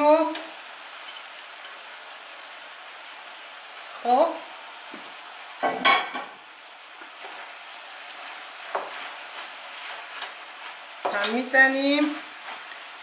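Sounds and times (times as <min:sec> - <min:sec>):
food sizzling in a frying pan: 0:00.0 - 0:13.0
wooden spoon stirring: 0:08.2 - 0:12.9.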